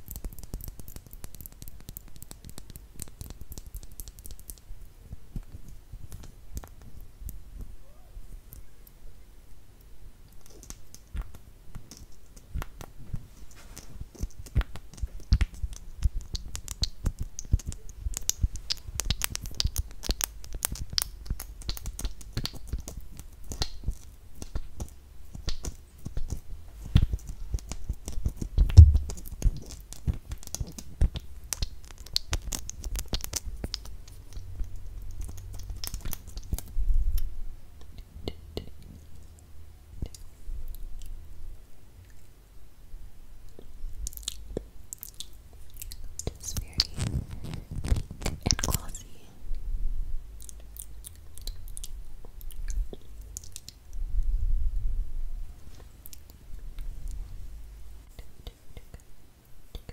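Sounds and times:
wet mouth clicks and smacks: 0.0 - 4.7, 10.4 - 13.0, 13.8 - 39.3, 43.5 - 49.2, 50.4 - 54.0, 56.0 - 56.9
lip gloss application: 13.8 - 39.3.

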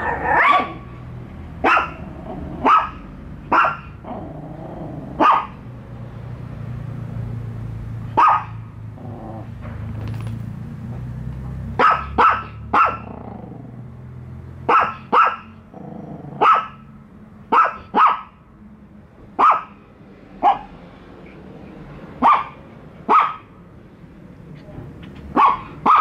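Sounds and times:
small dogs yapping: 0.0 - 1.0, 1.6 - 5.6, 8.2 - 8.7, 11.8 - 13.3, 14.7 - 15.6, 16.3 - 16.8, 17.5 - 18.4, 19.4 - 19.8, 22.2 - 23.5, 25.3 - 26.0.

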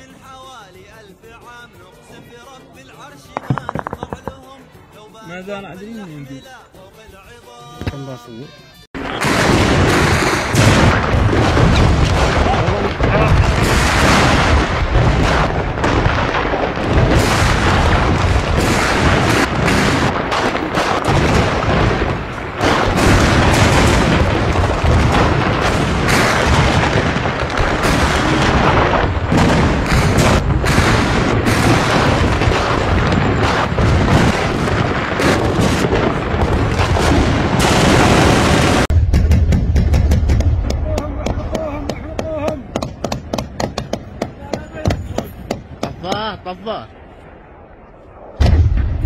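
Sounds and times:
heavy continuous gunfire: 9.0 - 46.4.

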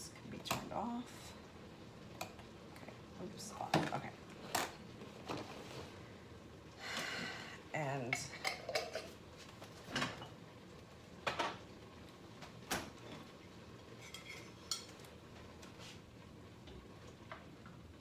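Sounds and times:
dishes knocking and clinking: 8.2 - 9.2, 11.2 - 11.6.

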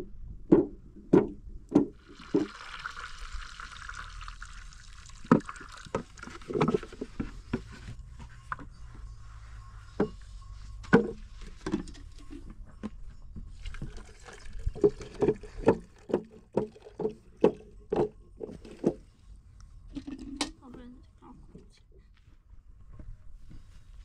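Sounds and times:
knocks: 0.5 - 2.0.

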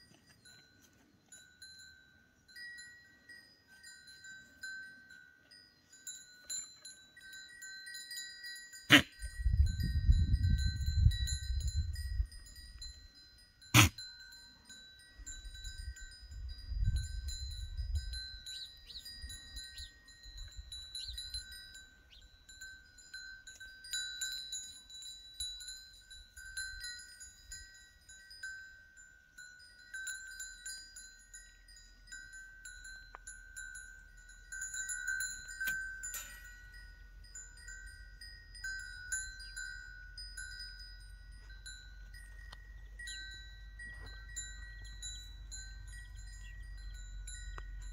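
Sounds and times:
small metal bells jingling: 0.0 - 47.9
wind rumble on microphone: 9.2 - 13.2, 15.2 - 22.5.

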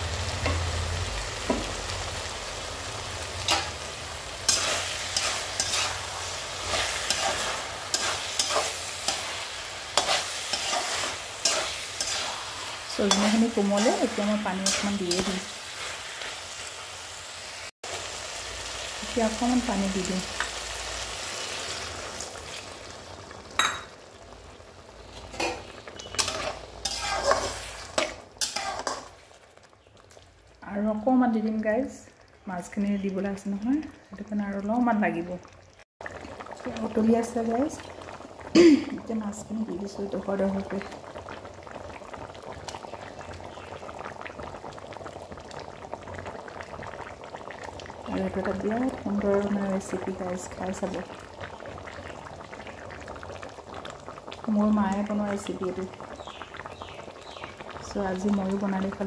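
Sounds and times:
curry sizzling in a pan: 0.0 - 59.0
metal spatula scraping a pan: 4.5 - 16.4, 25.1 - 29.2.

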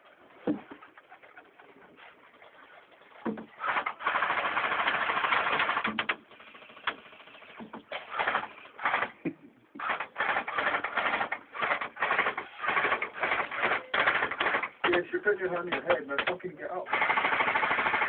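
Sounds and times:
airsoft guns firing: 3.6 - 9.2, 9.8 - 18.0.

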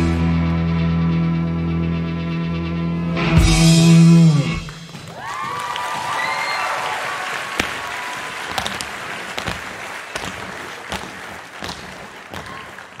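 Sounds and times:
audience applauding: 4.6 - 13.0
tap shoes clicking on wooden stage: 4.7 - 13.0.

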